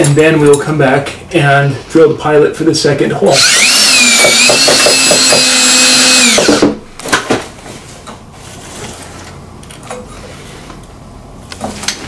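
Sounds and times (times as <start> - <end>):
cordless drill motor whining: 3.3 - 6.8.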